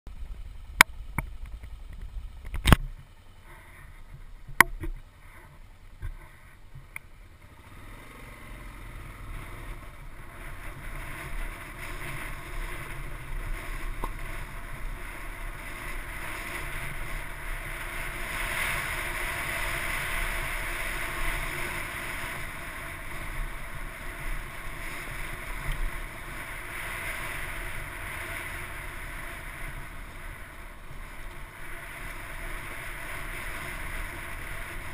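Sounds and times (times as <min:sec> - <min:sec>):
motorcycle ride noise rushing: 0:00.1 - 0:34.9.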